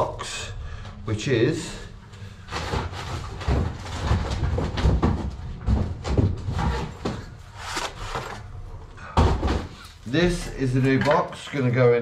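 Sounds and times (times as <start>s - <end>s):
handling knocks and bumps: 2.5s - 7.4s.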